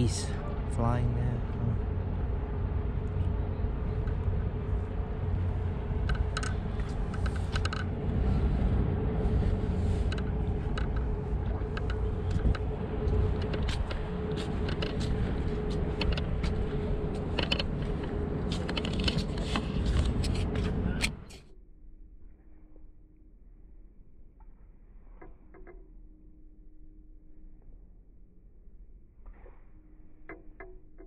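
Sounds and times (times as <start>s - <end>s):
wind rumbling on microphone: 0.0s - 21.3s
steady hum: 0.0s - 22.2s
light clicks and ticks: 10.0s - 21.4s.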